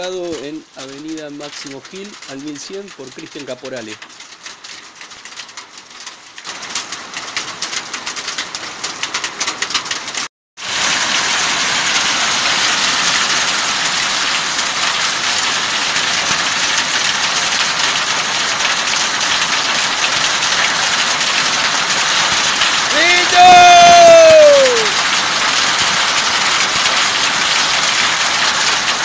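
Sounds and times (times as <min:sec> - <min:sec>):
hailstones clicking on surfaces: 0:00.1 - 0:29.0
heavy hail hissing: 0:10.6 - 0:29.0.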